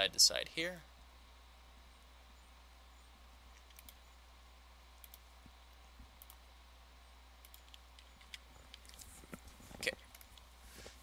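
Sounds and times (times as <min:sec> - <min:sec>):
low electrical hum: 0:00.0 - 0:11.0
computer mouse clicks: 0:03.5 - 0:04.1, 0:05.0 - 0:06.5, 0:07.4 - 0:10.5.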